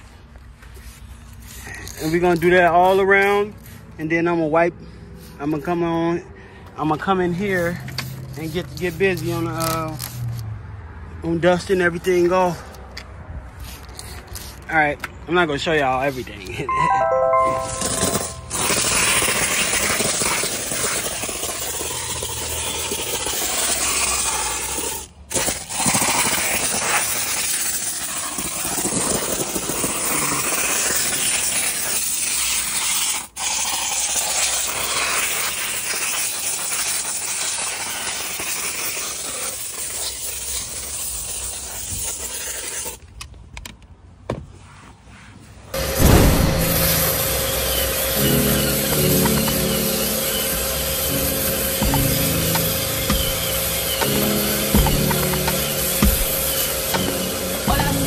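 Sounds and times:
steam cleaner hissing: 17.8s - 43.0s, 45.8s - 58.0s.

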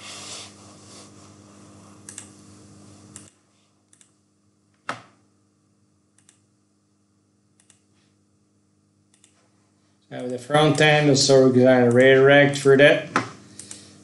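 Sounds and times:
faint steady hum: 0.0s - 14.0s
computer mouse clicks: 2.0s - 2.3s, 3.1s - 4.2s, 6.2s - 6.4s, 7.6s - 7.9s, 9.1s - 9.4s, 13.6s - 13.9s.

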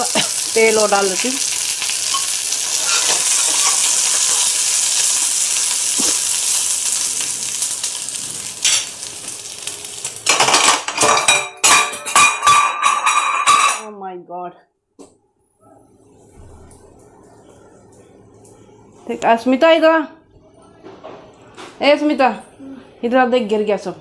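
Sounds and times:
oil sizzling in a pan: 0.0s - 11.8s.

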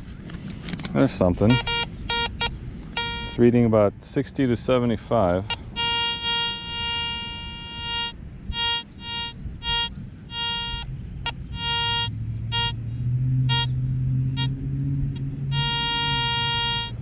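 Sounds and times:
metal detector beeps: 1.4s - 3.5s, 5.4s - 12.8s, 13.5s - 13.7s, 15.5s - 17.0s.

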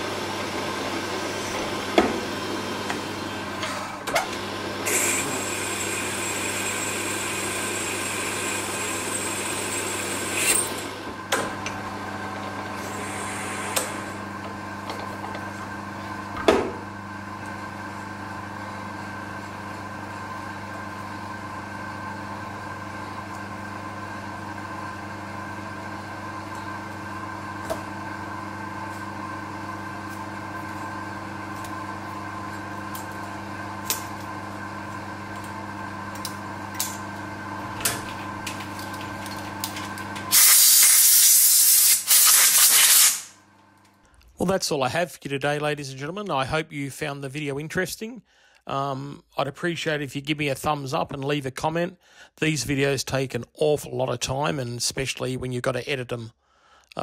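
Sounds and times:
milling machine humming: 0.0s - 41.8s
compressed air hissing: 12.8s - 14.2s, 40.3s - 43.4s.

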